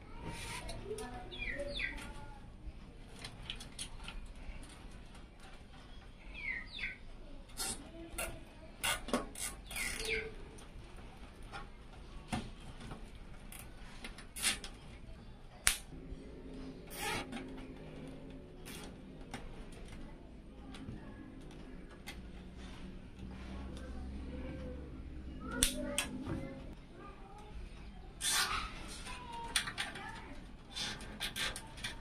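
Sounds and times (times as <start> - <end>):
cables rustling and clicking: 0.0 - 6.2, 7.2 - 32.0.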